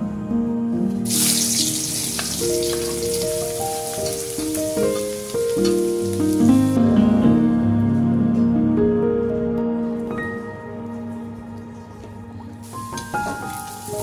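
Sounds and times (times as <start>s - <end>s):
soft background music: 0.0s - 14.0s
hot oil sizzling in a wok: 1.0s - 6.5s, 12.6s - 14.0s.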